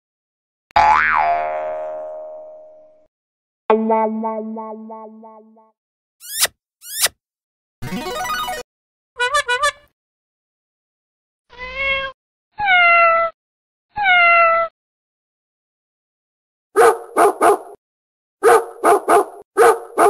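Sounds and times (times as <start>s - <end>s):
kitten meowing: 11.5s - 13.4s, 14.0s - 14.7s.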